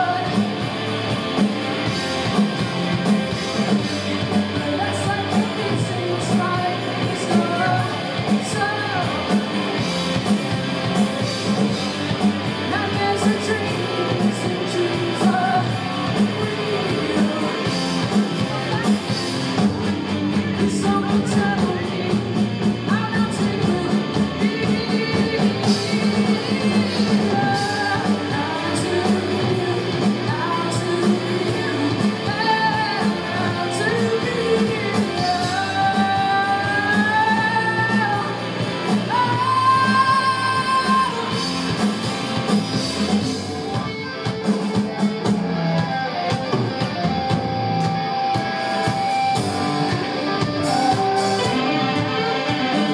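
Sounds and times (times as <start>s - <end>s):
person singing: 0.0s - 0.8s, 3.4s - 9.9s, 12.5s - 43.2s, 48.8s - 52.9s
electric guitar: 0.0s - 52.9s
steady drum beat: 0.0s - 52.9s.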